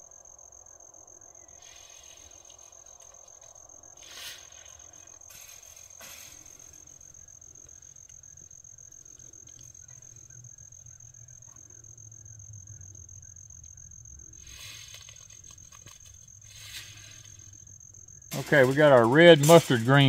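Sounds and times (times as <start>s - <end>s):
crickets trilling: 0.0s - 20.0s
short rustle: 1.7s - 7.0s, 14.4s - 17.6s.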